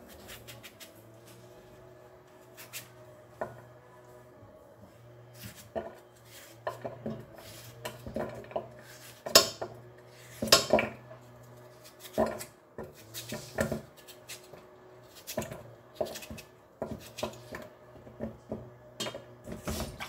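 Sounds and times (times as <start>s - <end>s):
knife cutting potato: 0.1s - 1.4s, 2.4s - 3.0s, 5.3s - 10.9s, 11.6s - 17.7s.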